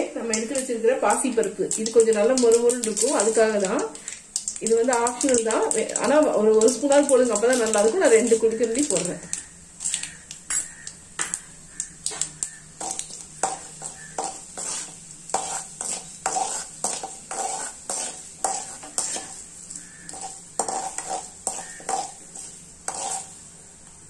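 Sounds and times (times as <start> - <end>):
seeds sizzling in hot oil: 0.0 - 24.0
metal ladle scraping a pan: 12.8 - 23.4.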